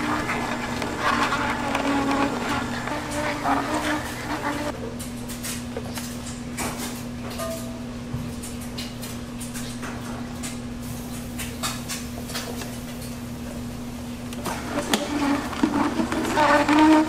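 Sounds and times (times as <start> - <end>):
juicer motor hum: 0.0 - 4.8, 14.3 - 17.0.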